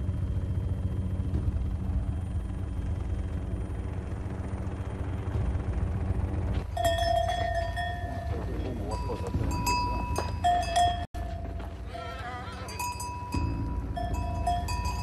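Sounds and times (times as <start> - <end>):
low steady rumble: 0.0 - 15.0
cowbells ringing: 6.7 - 15.0.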